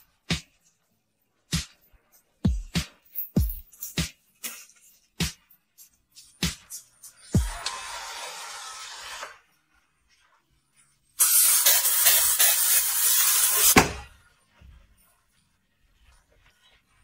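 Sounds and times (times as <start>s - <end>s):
steam cleaner hissing: 11.2s - 13.9s.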